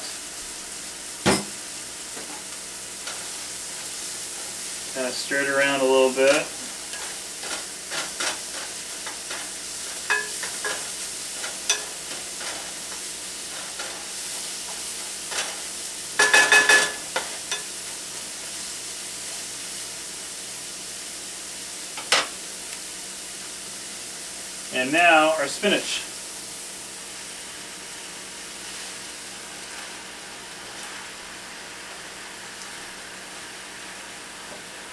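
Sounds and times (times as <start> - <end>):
vegetables sizzling in frying pan: 0.0 - 34.9
wooden spatula scraping pan: 29.6 - 31.2.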